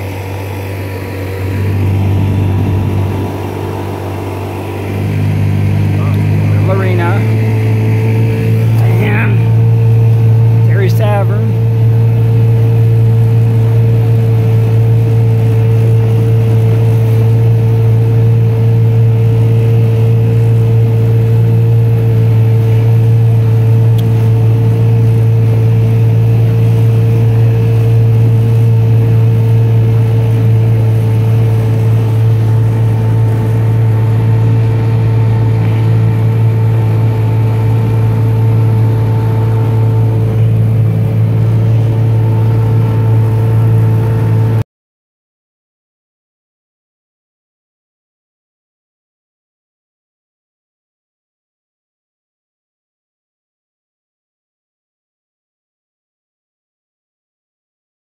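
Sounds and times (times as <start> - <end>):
boat motor droning: 0.0 - 44.6.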